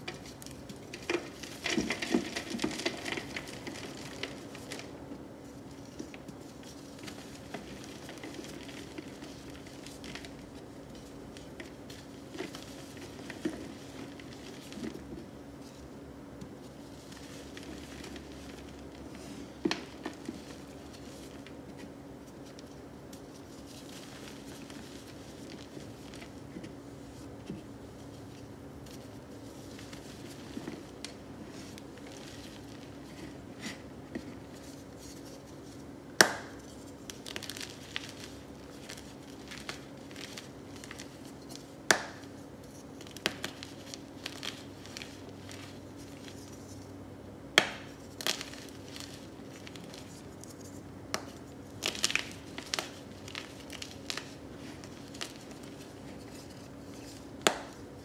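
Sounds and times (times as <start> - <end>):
chalk crunching and sifting: 0.0 - 15.9, 16.5 - 35.9, 36.5 - 46.9, 47.8 - 58.0
steady low hum: 0.0 - 58.0
sharp cracks of chalk breaking: 36.2 - 38.0, 47.6 - 48.6.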